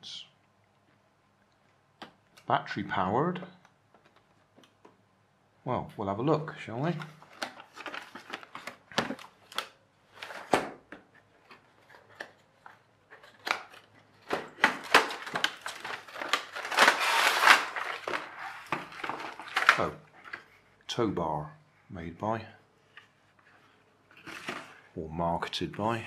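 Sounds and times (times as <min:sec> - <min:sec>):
plastic insert sliding scrape: 0:16.6 - 0:18.8.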